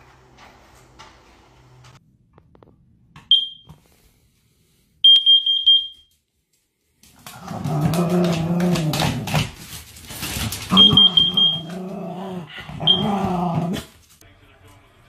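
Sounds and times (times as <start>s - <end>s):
short beep: 3.3s - 3.7s, 5.0s - 6.1s, 10.7s - 11.6s
dog growling: 7.2s - 9.6s, 10.7s - 14.0s.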